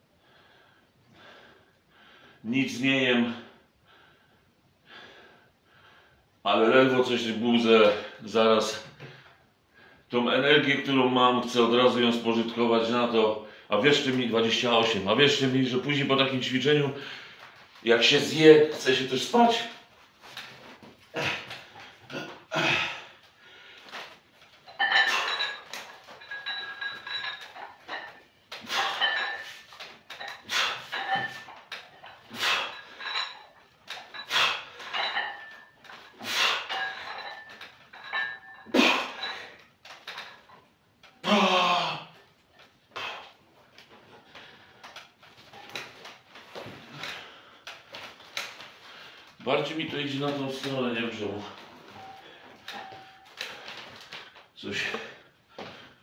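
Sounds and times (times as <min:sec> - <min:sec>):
hard breathing: 0:16.9 - 0:17.7, 0:20.9 - 0:39.6, 0:42.9 - 0:45.8, 0:51.6 - 0:56.0
barbell lifted: 0:23.9 - 0:40.6.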